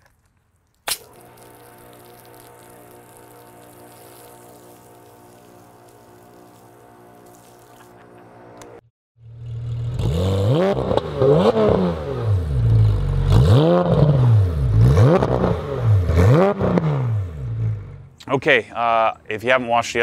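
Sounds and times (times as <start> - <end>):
engine revving: 1.0 - 18.1
hum of held tones: 1.1 - 8.8.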